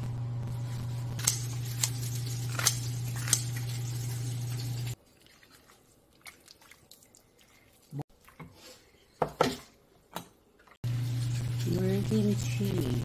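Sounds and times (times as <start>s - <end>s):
steady low hum: 0.0s - 5.0s.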